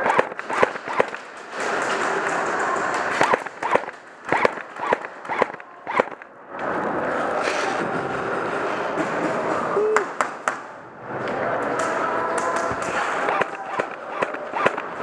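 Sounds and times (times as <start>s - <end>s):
airsoft guns popping: 0.0s - 6.3s, 12.4s - 15.0s.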